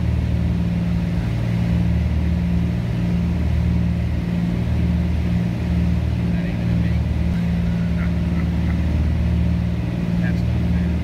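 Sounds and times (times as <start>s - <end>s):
propeller plane cabin drone: 0.0s - 11.0s.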